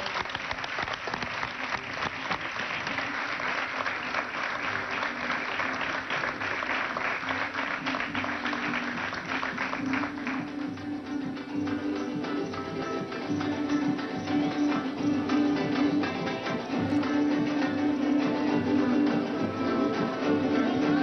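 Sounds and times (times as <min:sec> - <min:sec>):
crowd applauding: 0:00.0 - 0:21.0
folk string band playing: 0:02.9 - 0:21.0.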